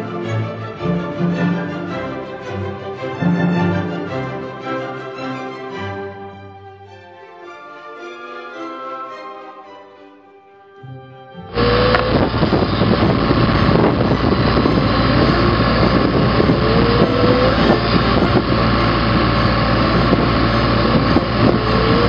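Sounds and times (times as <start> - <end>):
short rising squeal: 11.5 - 22.0
machine machining steel: 11.6 - 22.0.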